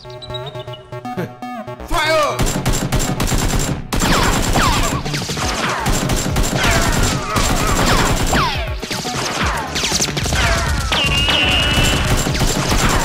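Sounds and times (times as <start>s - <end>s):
falling whistles: 0.0s - 1.0s, 10.9s - 12.1s
rapid gunfire: 2.4s - 13.0s.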